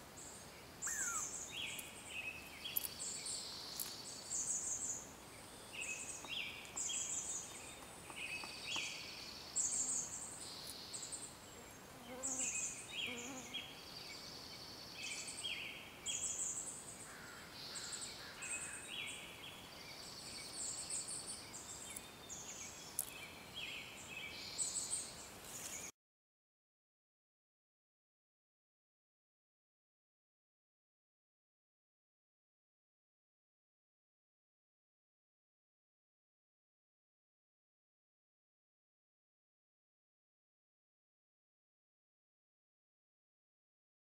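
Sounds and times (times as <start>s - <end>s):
small birds chirping and trilling: 0.2s - 25.9s.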